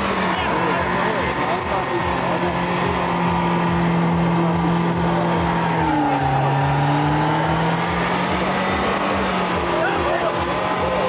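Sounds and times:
car engine at high revs: 0.0s - 11.0s
tyres spinning: 0.0s - 11.0s.

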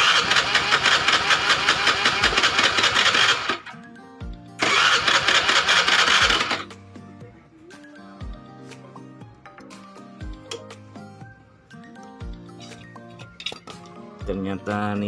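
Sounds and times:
electric starter cranking engine: 0.0s - 3.8s, 4.6s - 6.7s.

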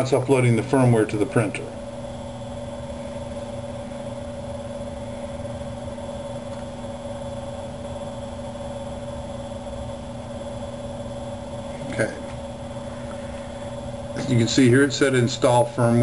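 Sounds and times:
steady machine hum: 0.0s - 16.0s.

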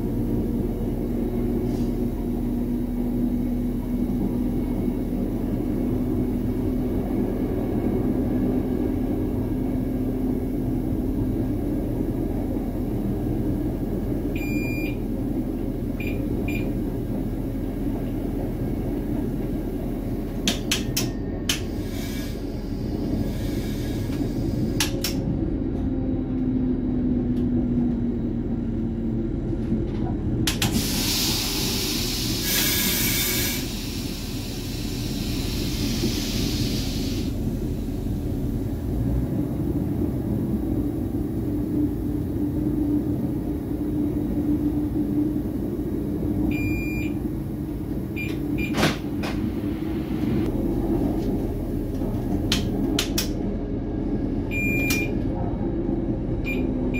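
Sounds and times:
train engine and wheels rumbling: 0.0s - 56.9s
hiss: 30.7s - 38.0s.

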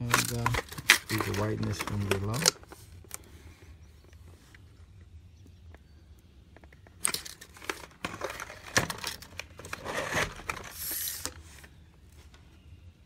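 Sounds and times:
tape measure scraping on plastic: 7.7s - 11.4s.

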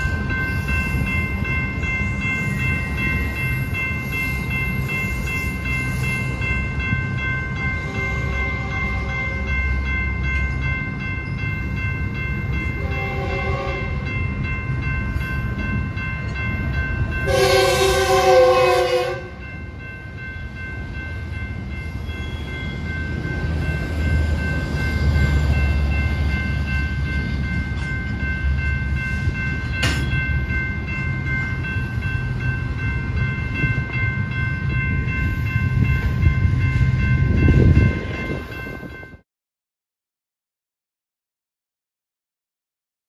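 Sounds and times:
crossing bell ringing: 0.0s - 39.2s
freight train rumbling: 0.0s - 39.2s
train horn: 7.8s - 9.5s, 12.8s - 14.0s, 17.2s - 19.4s.

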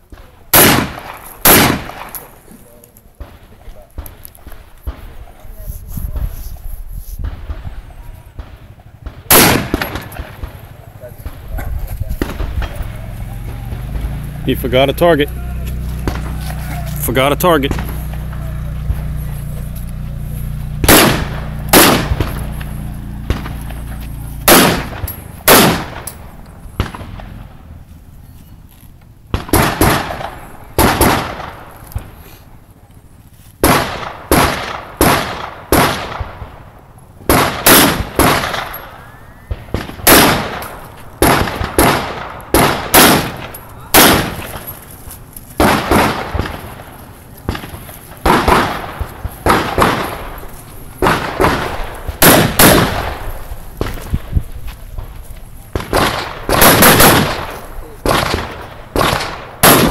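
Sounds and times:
rifle shots with echo: 0.0s - 5.4s, 7.2s - 27.7s, 29.3s - 32.2s, 33.6s - 59.9s.

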